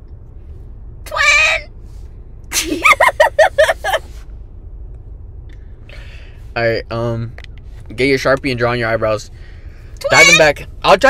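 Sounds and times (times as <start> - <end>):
person shouting: 1.1 - 1.7, 10.0 - 10.6
person laughing hard: 2.5 - 4.1.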